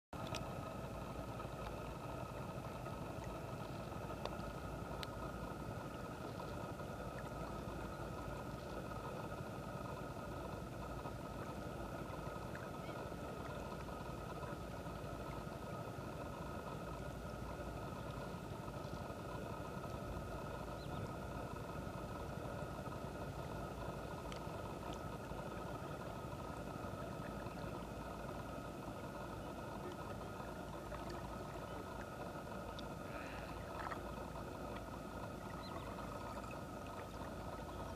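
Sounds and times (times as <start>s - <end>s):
faint ticks: 0.2s - 37.9s
low rumble and hiss: 0.2s - 37.9s
thin constant whine: 0.2s - 37.9s.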